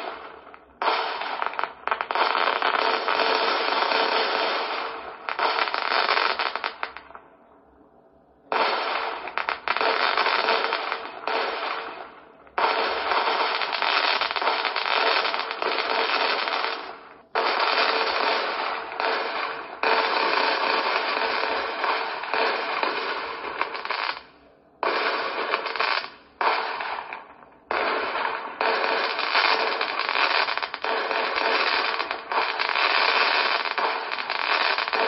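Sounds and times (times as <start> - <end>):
fireworks bursting and crackling: 0.0 - 35.0.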